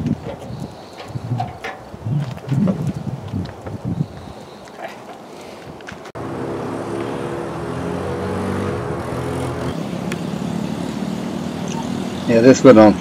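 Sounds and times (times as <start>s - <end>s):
small atv engine running: 6.2s - 13.0s.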